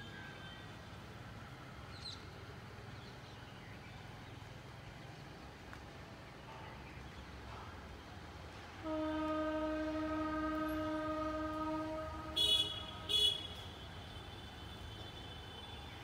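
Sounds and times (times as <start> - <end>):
electric locomotive horn: 8.8 - 14.0.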